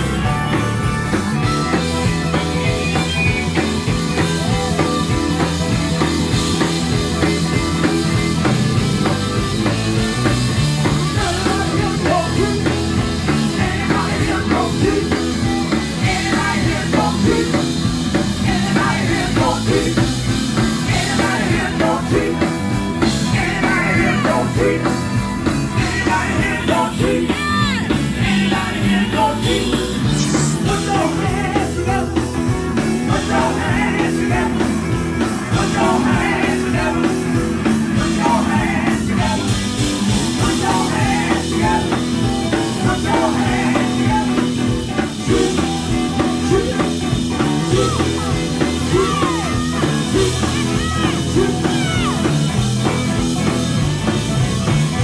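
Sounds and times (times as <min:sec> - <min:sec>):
drum kit: 0:00.0 - 0:55.0
live gospel band music: 0:00.0 - 0:55.0
person singing: 0:10.8 - 0:52.6.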